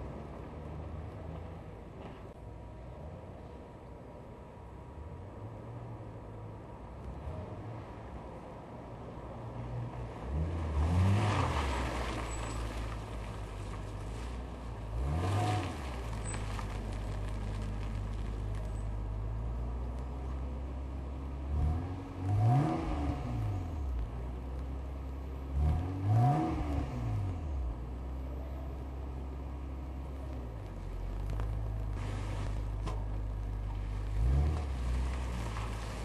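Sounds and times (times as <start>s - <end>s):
car exhaust idling and revving: 9.1s - 36.0s.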